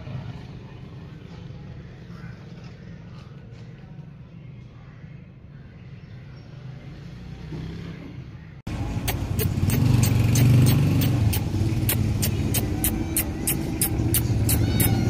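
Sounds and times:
vehicle engine running: 8.7 - 15.0.

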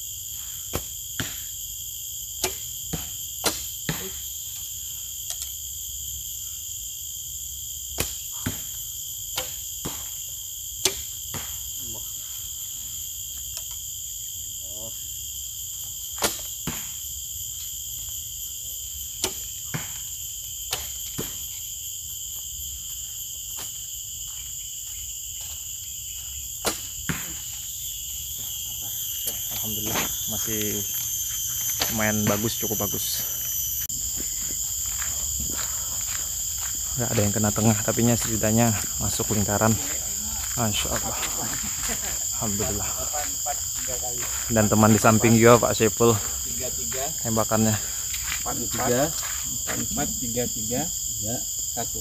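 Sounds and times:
insects shrilling: 0.0 - 52.0
arrow thudding into target: 2.4 - 4.2, 16.2 - 17.0, 26.6 - 27.6.

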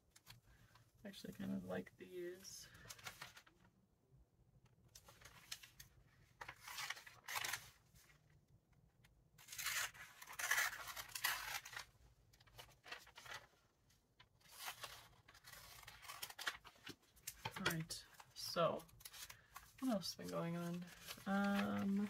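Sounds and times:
paper rustle: 2.7 - 3.7, 4.9 - 8.2, 9.4 - 13.6, 14.2 - 22.0.

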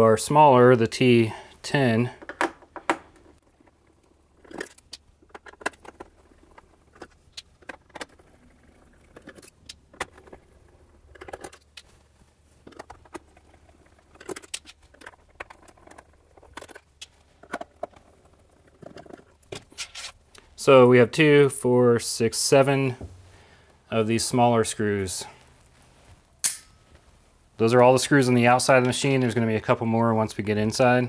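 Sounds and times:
metal screws clinking: 26.4 - 26.8.

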